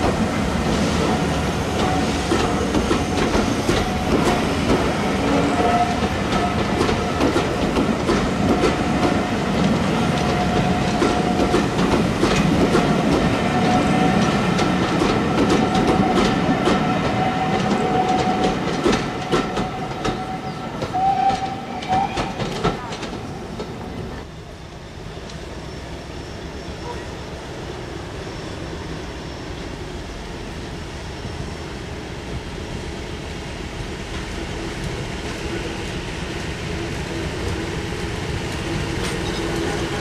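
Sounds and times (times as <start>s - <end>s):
train wheels clattering over rail joints: 0.0s - 23.9s.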